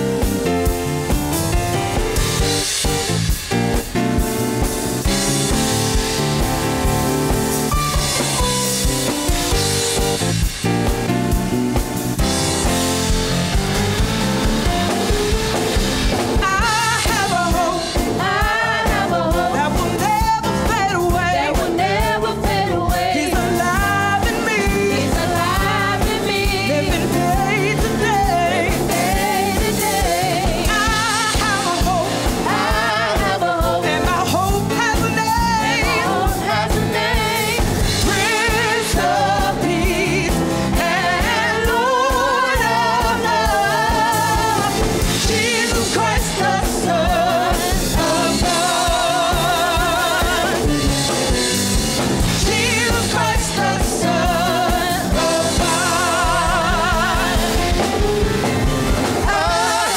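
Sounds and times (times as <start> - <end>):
bass guitar: 0.0 - 59.9
drum kit: 0.0 - 59.9
keyboard: 0.0 - 59.9
gospel singers: 12.1 - 59.9.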